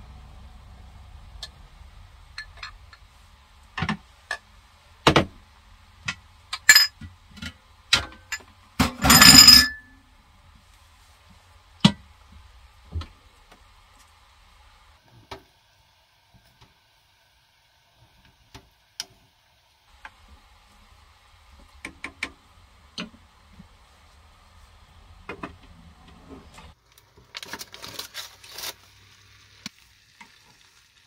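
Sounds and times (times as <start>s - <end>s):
dishes clinking and knocking: 6.6s - 7.1s, 8.0s - 9.9s.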